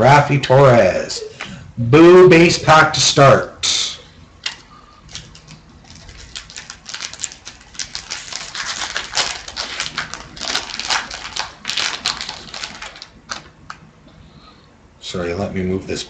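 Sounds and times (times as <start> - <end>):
card pack wrapper crackling: 4.4 - 13.8
cards being handled: 4.4 - 13.8.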